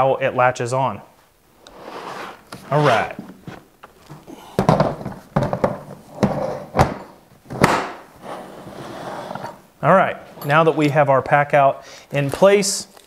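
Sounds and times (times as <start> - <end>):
plastic tool box clunking and clicking: 2.5 - 8.0.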